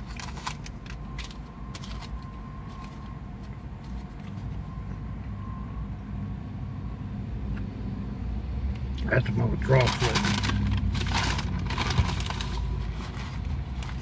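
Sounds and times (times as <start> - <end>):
paper wrapper crinkling: 0.0 - 3.1, 9.6 - 14.0
low vehicle rumble: 0.0 - 14.0.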